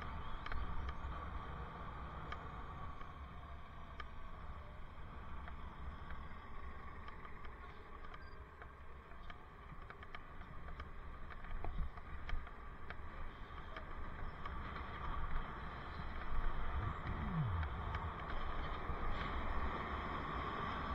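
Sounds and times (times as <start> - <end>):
bicycle tyres rumbling: 0.0 - 20.9
small clicks and rattles: 2.2 - 20.2
wind on microphone: 16.5 - 19.1.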